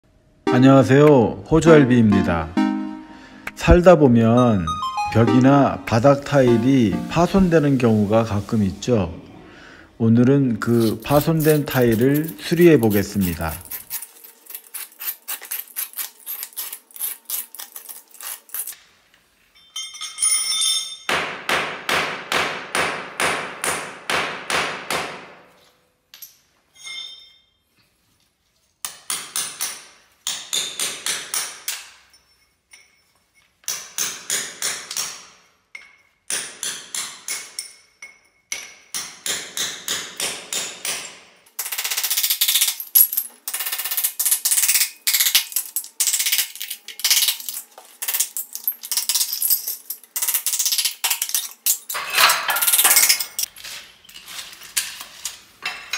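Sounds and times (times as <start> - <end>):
knife scraping grout: 10.6 - 18.8
hammer striking chisel: 33.6 - 41.3.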